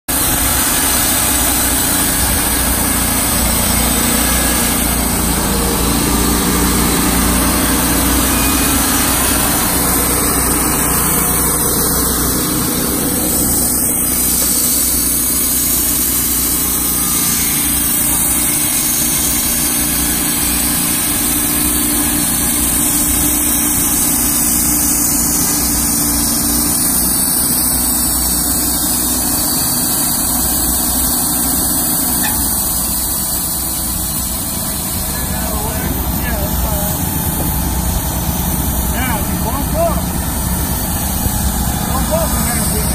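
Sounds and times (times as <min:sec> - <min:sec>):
band blade cutting wood: 0:00.1 - 0:33.6
loud engine drone: 0:00.1 - 0:42.9.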